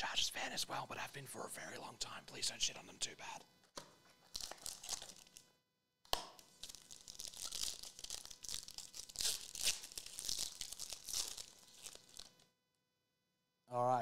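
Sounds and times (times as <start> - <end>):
shiny wrapper tearing and crinkling: 4.3 - 5.4, 6.2 - 12.4.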